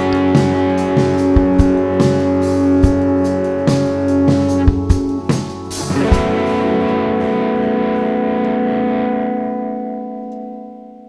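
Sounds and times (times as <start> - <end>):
drum and cymbal hit: 0.0 - 6.6
distorted electric guitars chord: 0.0 - 11.0.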